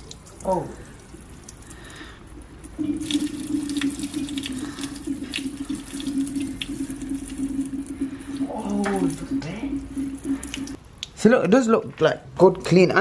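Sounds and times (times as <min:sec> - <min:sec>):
drip ticks: 0:00.0 - 0:05.7
coolant stream splattering: 0:00.0 - 0:10.8
steady low hum: 0:00.0 - 0:10.8.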